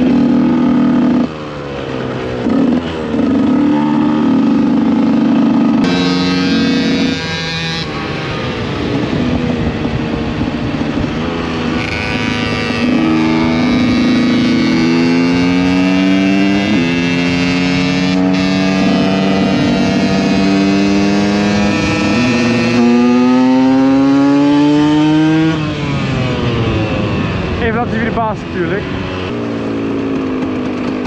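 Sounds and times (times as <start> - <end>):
two-stroke motorcycle engine revving: 0.0 - 31.0.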